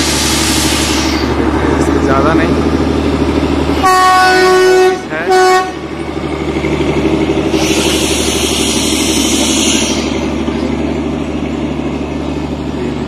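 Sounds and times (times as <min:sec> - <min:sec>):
hiss: 0:00.0 - 0:01.3, 0:07.5 - 0:10.3
train coaches rumbling: 0:00.0 - 0:13.0
train whistle toot: 0:03.8 - 0:05.8.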